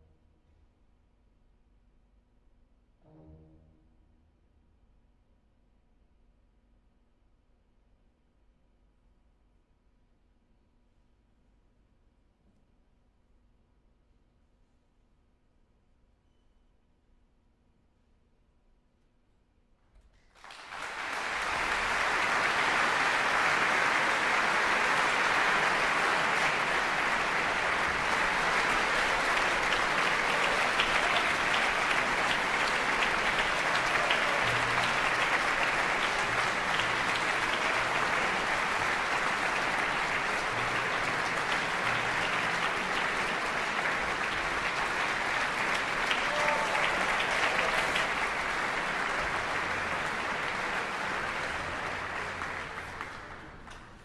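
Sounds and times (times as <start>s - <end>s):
audience applauding: 20.3s - 53.8s.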